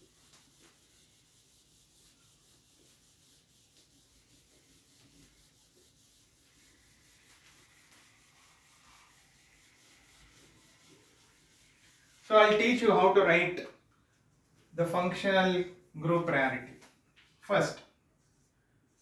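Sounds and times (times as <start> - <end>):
duster rubbing whiteboard: 0.0 - 13.2.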